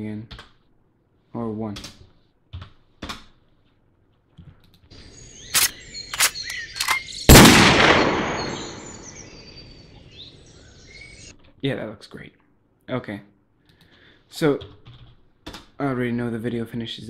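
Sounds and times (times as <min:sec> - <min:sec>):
birdsong: 0:04.9 - 0:11.3
gun-loading clicks: 0:05.5 - 0:09.0
gunshot: 0:07.3 - 0:09.3.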